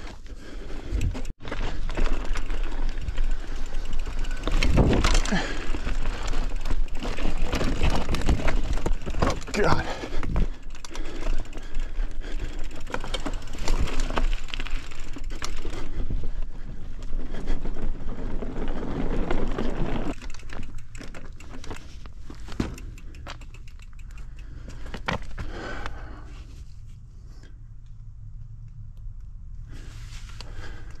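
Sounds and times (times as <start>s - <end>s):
bike rattling over rough trail: 0.0s - 26.8s, 29.7s - 31.0s
wind rumble on microphone: 4.4s - 5.2s.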